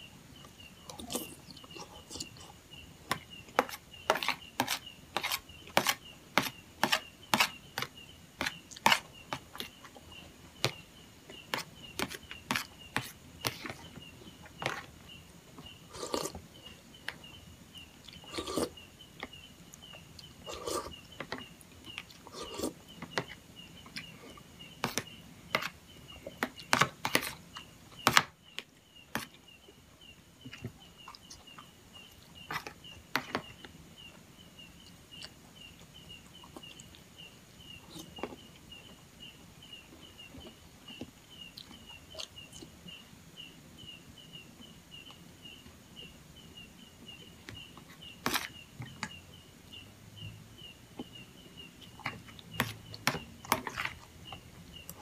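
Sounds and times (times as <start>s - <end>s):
metal spoon scraping plastic plate: 3.6s - 9.1s
eating sounds: 15.9s - 16.4s, 20.2s - 21.0s, 22.0s - 22.8s.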